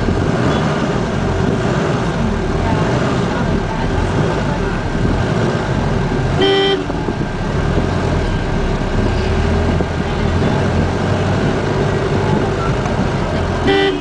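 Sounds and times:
engine and road rumble: 0.0s - 14.0s
vehicle horn toot: 6.3s - 7.0s, 13.6s - 14.0s.

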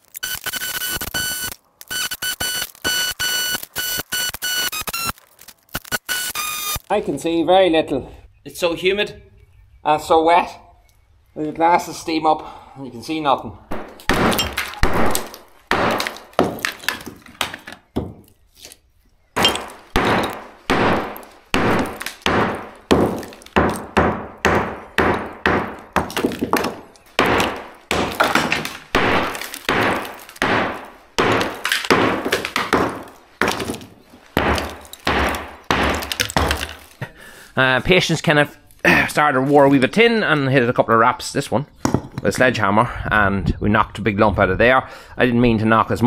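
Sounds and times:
hammer striking concrete: 13.7s - 17.1s, 19.4s - 36.8s
concrete lumps breaking away: 13.7s - 18.8s, 19.4s - 37.0s.

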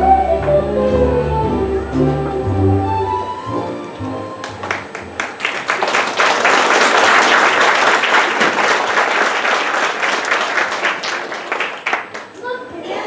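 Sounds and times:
audience applauding: 4.1s - 12.4s.

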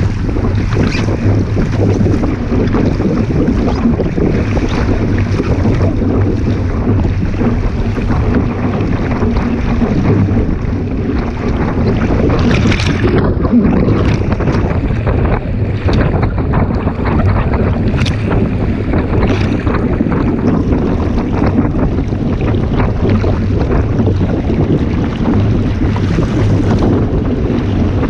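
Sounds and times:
water rushing and slapping: 0.0s - 28.0s
wind buffeting microphone: 0.0s - 28.0s.

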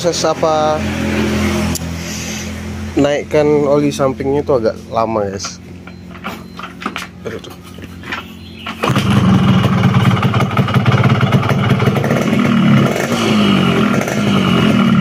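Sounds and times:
two-stroke motorcycle engine revving: 0.0s - 3.4s, 8.4s - 15.0s.

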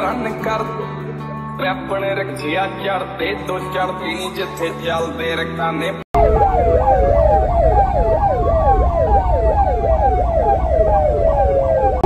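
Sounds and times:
electronic siren wailing: 6.2s - 12.0s
low traffic rumble: 6.2s - 12.0s.

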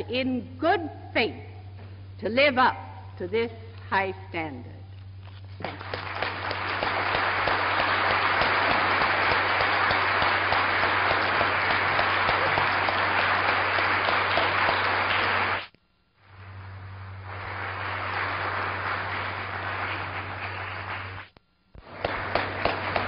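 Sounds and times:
crowd applauding: 5.6s - 15.7s, 16.6s - 23.0s
low soundtrack hum: 6.1s - 23.0s.

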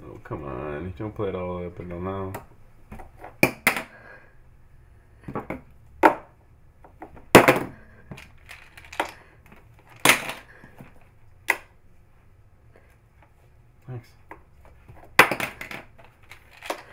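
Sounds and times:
papers rustling: 14.8s - 16.9s.

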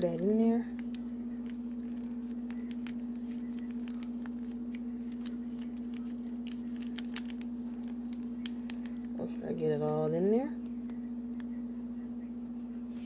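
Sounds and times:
plastic packet crinkling: 0.0s - 10.0s
steady low hum: 0.0s - 13.0s.

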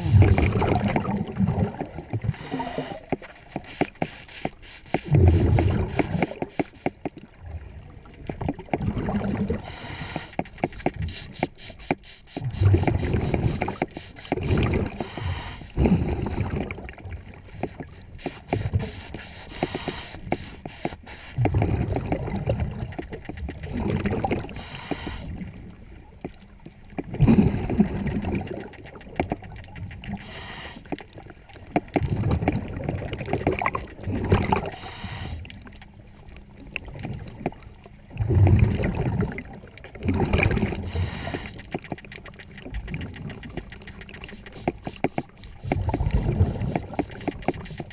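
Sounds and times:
exhaled bubbles rumbling: 0.0s - 3.2s, 5.0s - 6.6s, 7.2s - 9.9s, 12.4s - 18.0s, 21.4s - 47.9s
regulator inhalation hissing: 2.4s - 7.1s, 9.6s - 15.8s, 17.5s - 21.4s, 24.5s - 25.3s, 30.2s - 31.0s, 34.7s - 35.5s, 40.8s - 41.6s, 44.2s - 47.9s
rapid clicking and scraping: 3.0s - 7.2s, 10.0s - 15.2s, 17.5s - 21.6s, 41.2s - 47.9s.

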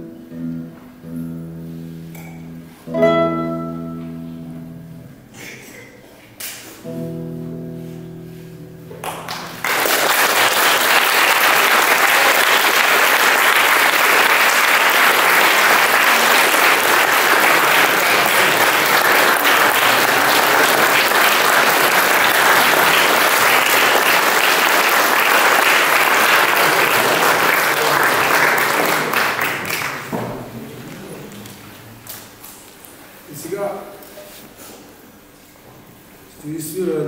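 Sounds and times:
classical guitar chord ringing: 0.0s - 5.3s, 6.8s - 9.6s
audience applause: 9.0s - 31.6s.

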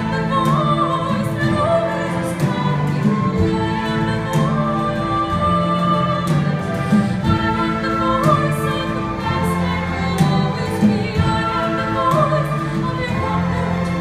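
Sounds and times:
string orchestra: 0.0s - 14.0s
woman singing: 0.0s - 14.0s.

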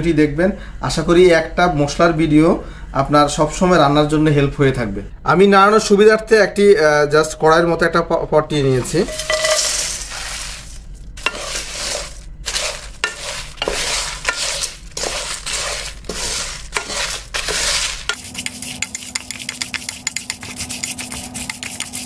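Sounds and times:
faint steady hum: 0.0s - 22.0s
spices scraping in a steel pot: 8.7s - 22.0s.

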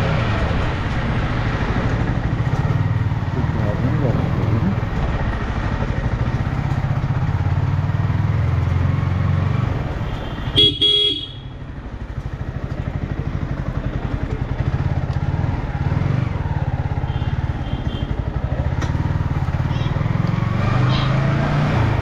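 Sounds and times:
horn honking: 10.0s - 11.6s, 17.0s - 18.3s.

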